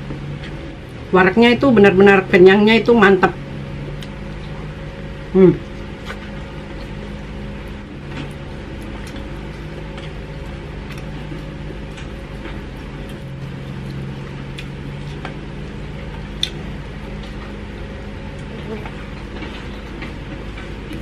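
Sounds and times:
steady low hum: 0.0 - 21.0
chewing and mouth clicks: 3.9 - 4.6, 5.7 - 15.4, 16.0 - 17.6.

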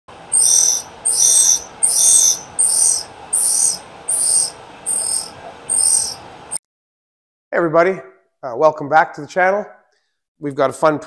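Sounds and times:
grinding wheel on steel: 0.3 - 6.2.

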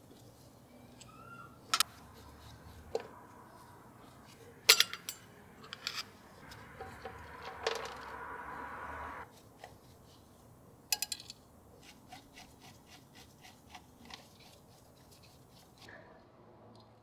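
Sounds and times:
metal parts clinking: 4.7 - 6.2.

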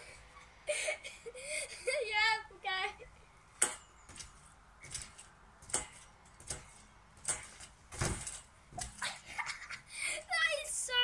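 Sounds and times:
trampoline springs creaking: 0.0 - 11.0
landing thump: 3.6 - 9.3.

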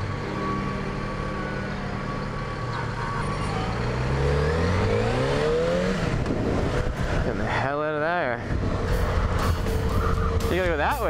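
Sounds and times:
motorcycle engine revving: 1.7 - 7.5, 8.4 - 11.0.

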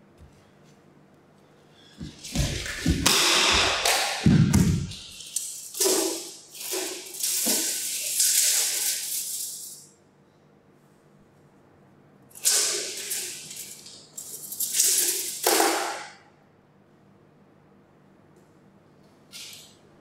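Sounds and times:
harsh hissing noise: 2.0 - 9.8.

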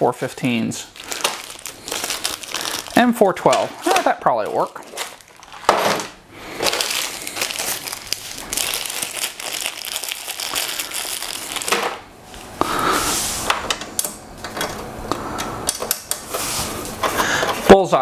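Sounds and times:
plastic bag crinkling: 0.4 - 12.1.

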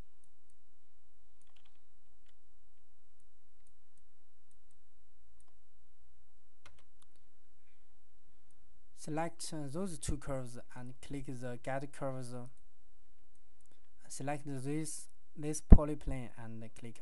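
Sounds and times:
faint electrical hum: 0.0 - 17.0
computer mouse clicking: 1.4 - 2.4, 6.6 - 7.3.

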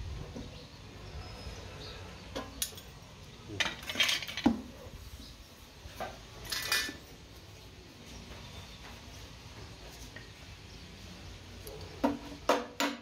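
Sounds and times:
sheet steel clinks and scrapes: 3.6 - 4.5, 6.4 - 7.0.

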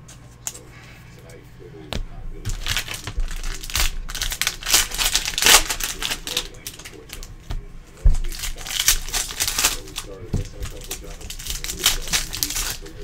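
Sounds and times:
foil card packs crinkling: 2.4 - 13.0
foil ripping: 2.4 - 13.0.

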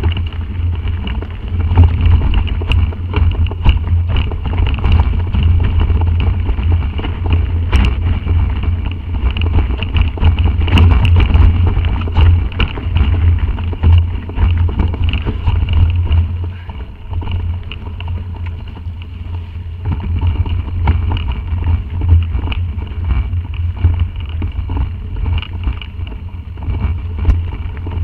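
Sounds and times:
bike rattling over bumps: 0.0 - 28.0
wind rumble on microphone: 0.0 - 28.0.

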